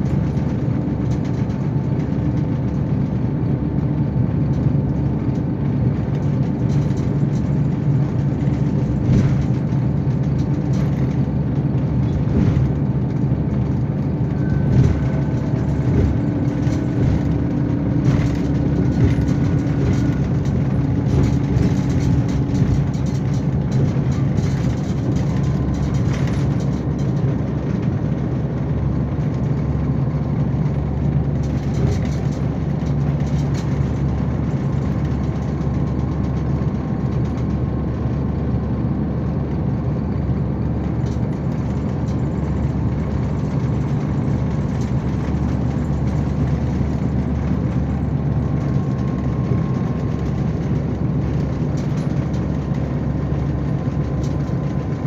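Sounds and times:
coach engine drone: 0.0s - 55.0s
interior parts rattling: 6.6s - 27.9s.

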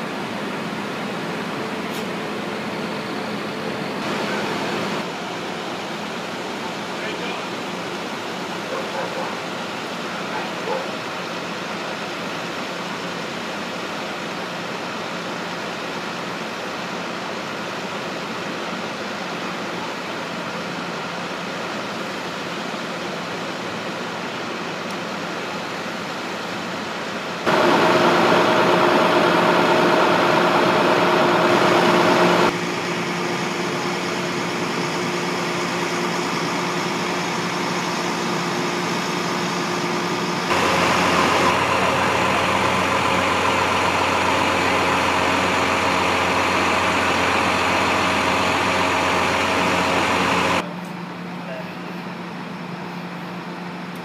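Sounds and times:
fire truck engine idling: 27.4s - 54.0s.

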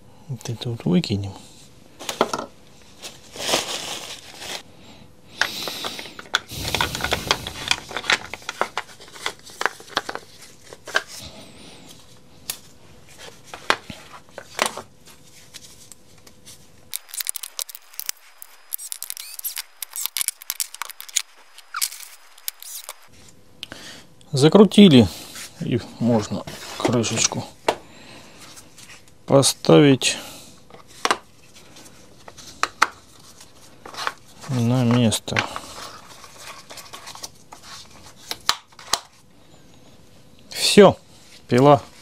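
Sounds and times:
plastic bag rustling: 2.8s - 4.7s, 6.5s - 10.9s
plastic parts clicking and rattling: 17.0s - 23.1s.

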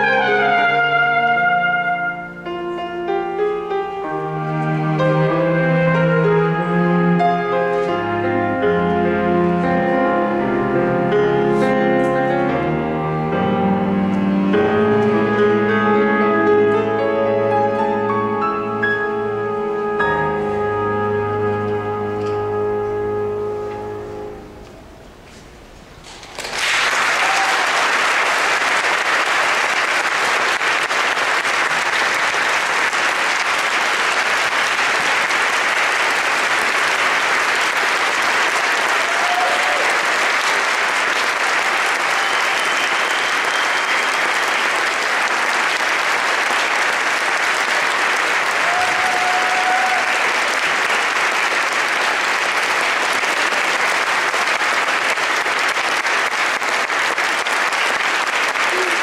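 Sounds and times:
audience applause: 26.2s - 59.0s
short cheers: 26.7s - 28.0s, 38.9s - 40.2s, 48.4s - 50.5s, 58.7s - 59.0s.

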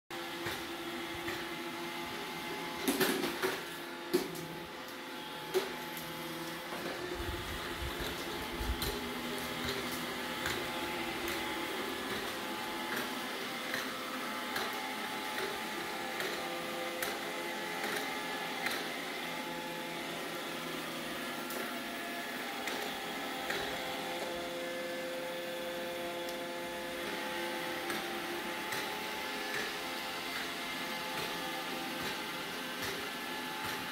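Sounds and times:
robot vacuum whirring: 0.2s - 33.9s.

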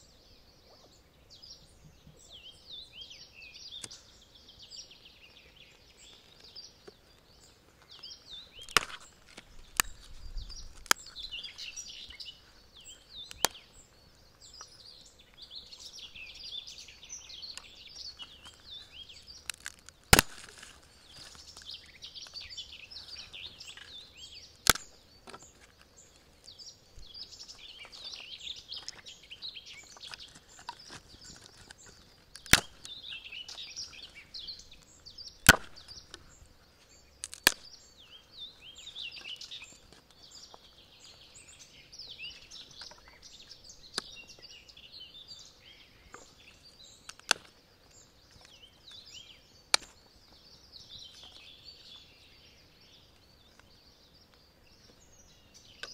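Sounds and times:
high-pitched birdsong: 0.0s - 55.9s
wood chopping knocks: 8.7s - 9.0s, 19.6s - 20.7s, 35.4s - 35.9s.

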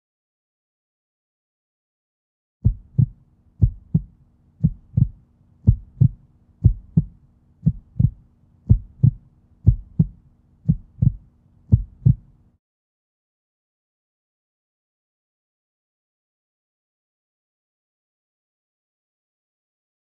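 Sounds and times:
heartbeat thumps: 2.6s - 12.3s
faint low hum: 2.6s - 12.6s.

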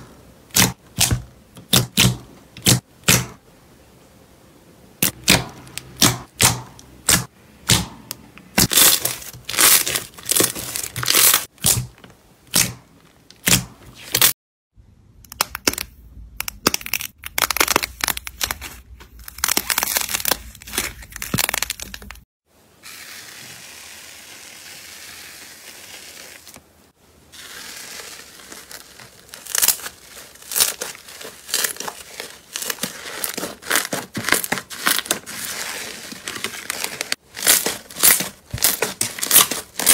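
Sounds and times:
slime crackling hiss: 22.8s - 26.6s, 27.3s - 31.8s.

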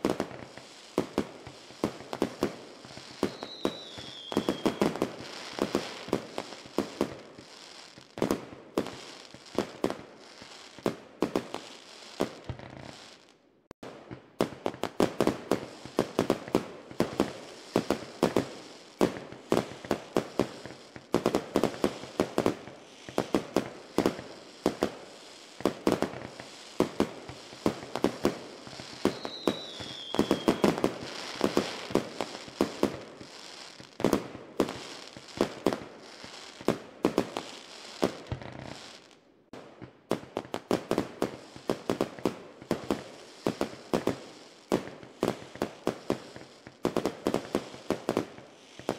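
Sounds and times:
falling firework whistle: 0.0s - 8.1s, 21.6s - 39.1s
fireworks bangs and crackles: 0.0s - 48.9s.

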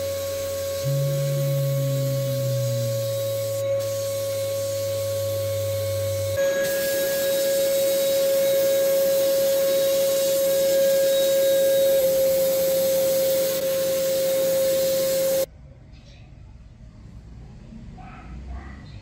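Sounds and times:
sandblasting gun hissing: 0.0s - 15.5s
steady whine: 0.0s - 15.5s.

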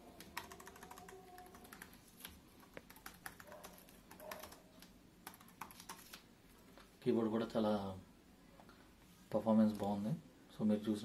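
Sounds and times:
keyboard typing clicks: 0.2s - 6.0s.

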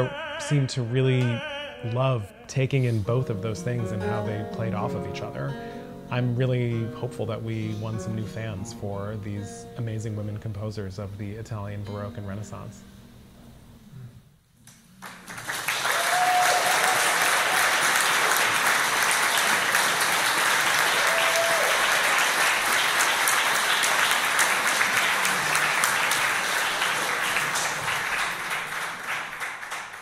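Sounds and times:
audience applauding: 15.0s - 30.0s.

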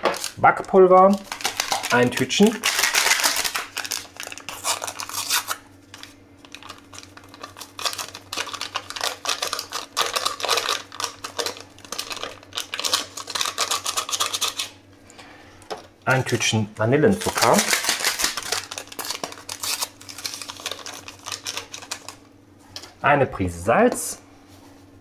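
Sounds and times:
paper sachets crinkling and tearing: 0.0s - 14.8s, 17.1s - 22.2s.

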